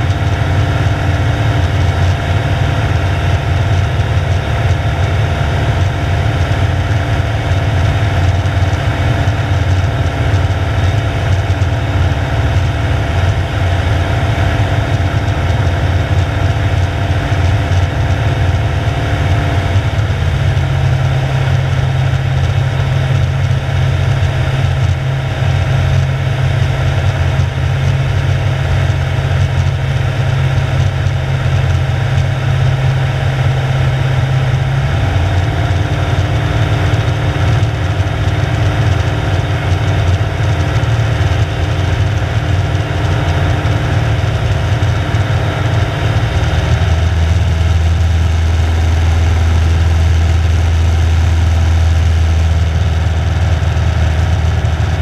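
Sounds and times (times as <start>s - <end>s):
light aircraft engine drone: 0.0s - 55.0s.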